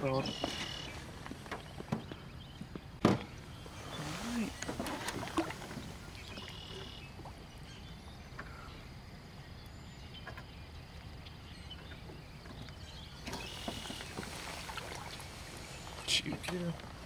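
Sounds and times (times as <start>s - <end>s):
faint water sounds: 0.0s - 17.0s
light water splash: 3.9s - 7.4s, 13.2s - 16.7s.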